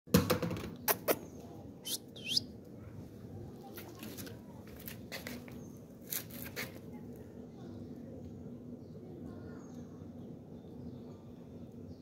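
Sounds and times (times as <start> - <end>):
high bird chirps: 0.9 - 2.5.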